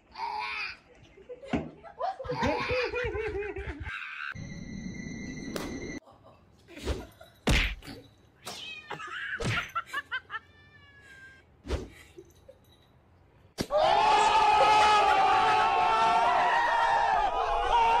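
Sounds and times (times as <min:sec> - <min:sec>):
cats meowing and yowling: 0:10.4 - 0:11.4.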